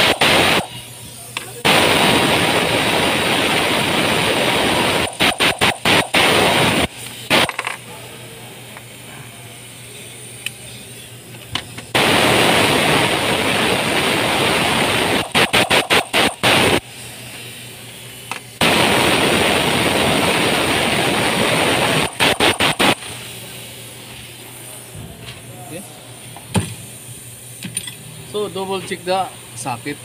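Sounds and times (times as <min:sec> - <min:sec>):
air ratchet hissing: 0:05.1 - 0:07.9, 0:15.3 - 0:18.6.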